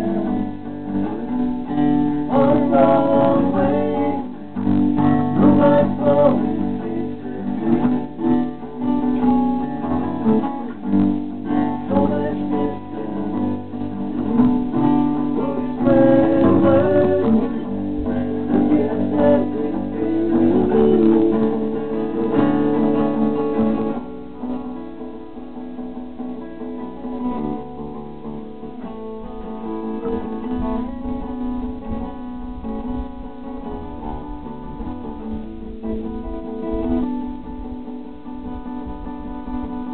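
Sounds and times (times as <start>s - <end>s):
man singing: 0.0s - 10.6s, 11.4s - 23.4s
acoustic bass guitar: 0.0s - 39.9s
acoustic guitars strumming: 0.0s - 39.9s.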